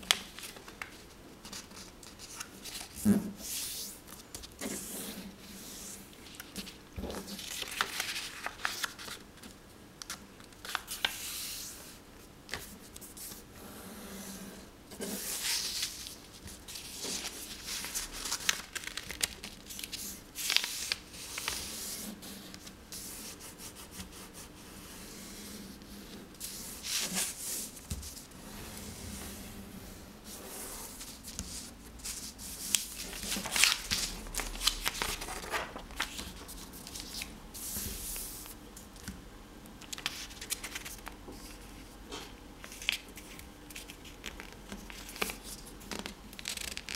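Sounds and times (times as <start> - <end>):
paper rustling and folding: 0.0 - 13.4, 15.0 - 24.5, 30.2 - 39.0, 39.8 - 41.8, 42.6 - 46.9.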